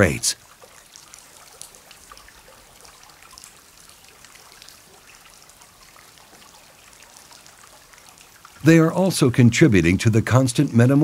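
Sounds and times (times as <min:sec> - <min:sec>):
faint trickling water: 0:00.0 - 0:11.0
small ticks: 0:00.6 - 0:08.6.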